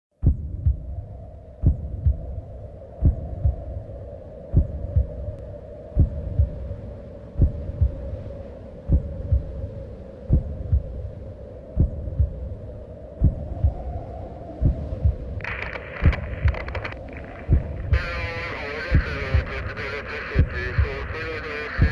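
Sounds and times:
slow heartbeat double thump: 0.2s - 2.4s, 3.0s - 3.8s, 4.5s - 5.4s, 6.0s - 6.7s, 7.4s - 8.1s, 8.9s - 9.7s, 10.3s - 11.1s, 11.8s - 12.6s, 13.2s - 14.0s, 14.6s - 21.9s
steady hum: 0.3s - 21.9s.

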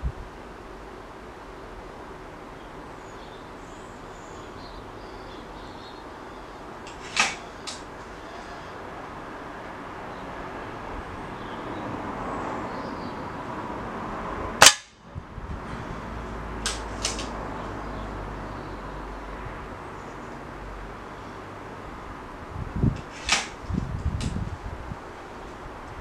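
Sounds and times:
air rifle shot: 7.0s - 7.8s, 14.6s - 15.0s, 23.1s - 23.6s.

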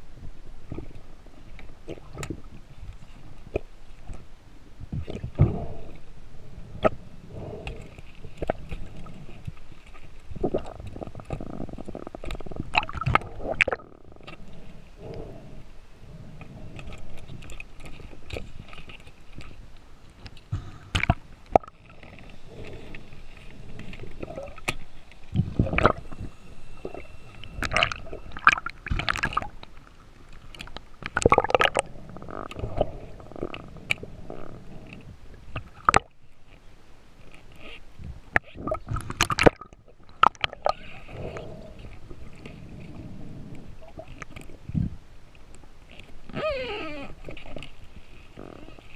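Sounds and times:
water gurgling underwater: 10.3s - 18.7s, 20.6s - 36.2s, 38.3s - 45.0s.

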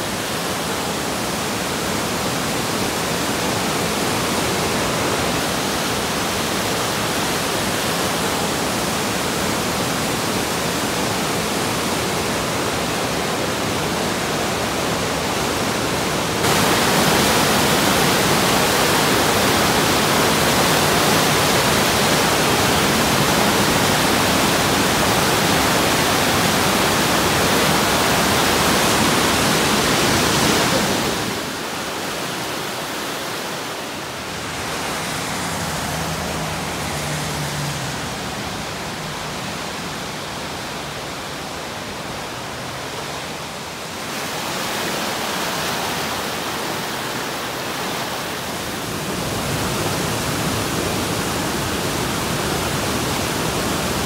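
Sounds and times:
river rapids rushing: 0.0s - 54.0s.

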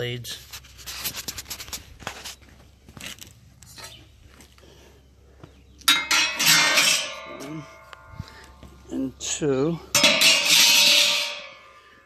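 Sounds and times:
faint clicks and rustles: 0.4s - 4.6s
concrete mixer metal clanking: 5.9s - 7.9s, 9.9s - 11.7s.

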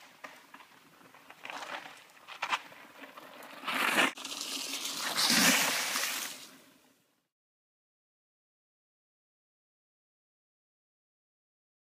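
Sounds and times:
bike tyres rolling on wet dirt: 0.0s - 6.8s
bike splashing through puddle: 4.0s - 6.5s.

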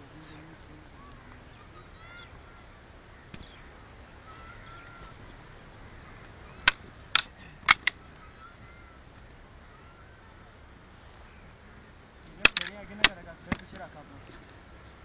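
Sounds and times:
wooden sticks clacking: 6.2s - 8.3s, 12.3s - 14.4s.

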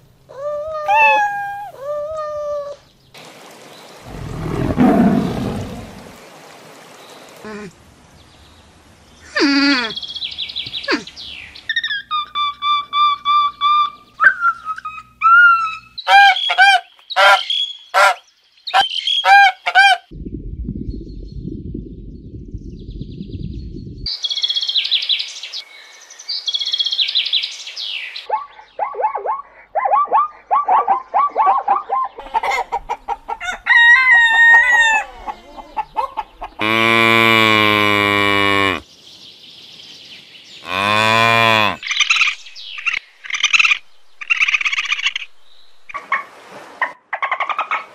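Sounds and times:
deep drawn-out animal calls: 4.0s - 6.2s, 34.5s - 38.8s, 40.6s - 42.0s
low rumbling animal call: 4.0s - 6.2s, 36.6s - 38.8s, 40.6s - 41.8s.

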